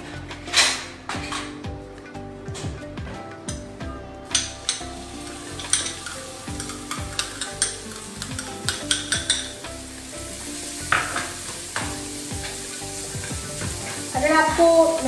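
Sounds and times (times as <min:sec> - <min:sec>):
spoon scraping bowl and pan: 0:04.2 - 0:14.2
onion sizzling in frying pan: 0:04.2 - 0:15.0.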